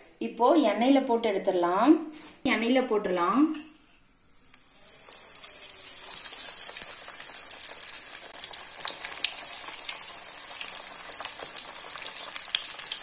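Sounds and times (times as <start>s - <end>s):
chicken deep-frying in oil: 4.6s - 13.0s.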